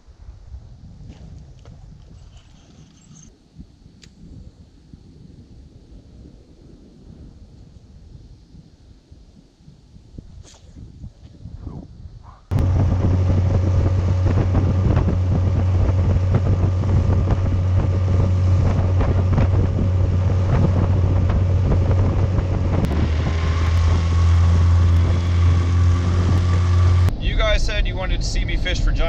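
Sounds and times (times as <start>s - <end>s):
wind buffeting microphone: 0.0s - 29.0s
outboard motor running: 12.5s - 27.1s.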